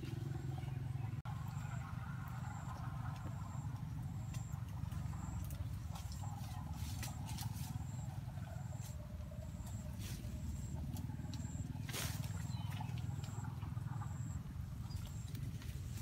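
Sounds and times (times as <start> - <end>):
twigs and leaves rustling: 4.1 - 13.5, 14.9 - 16.0.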